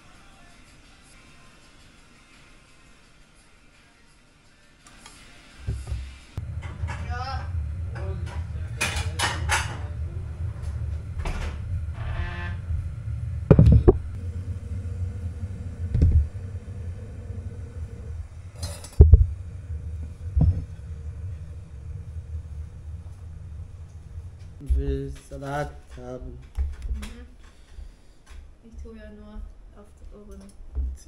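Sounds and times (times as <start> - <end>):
low steady rumble: 5.7 - 27.3.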